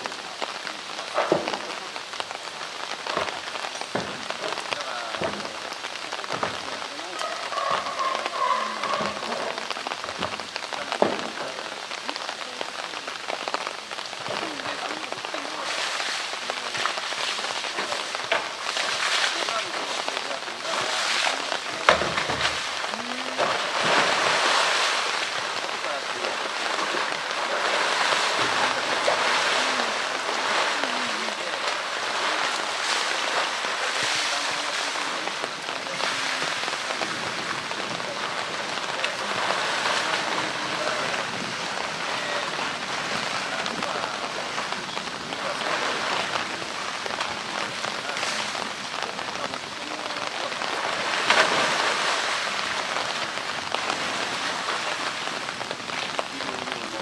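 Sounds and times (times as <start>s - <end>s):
bear wading through water: 0.0s - 57.0s
loud splash: 0.0s - 57.0s
water pouring from pipe: 0.0s - 57.0s.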